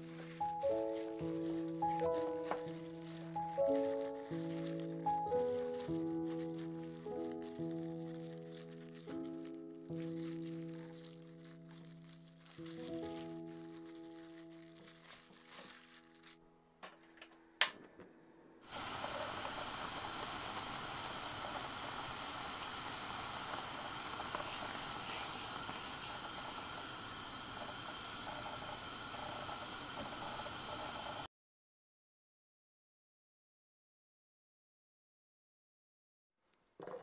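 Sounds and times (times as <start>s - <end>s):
soft background music: 0.0s - 16.8s
jam bubbling in a pot: 18.7s - 31.2s, 36.8s - 37.0s.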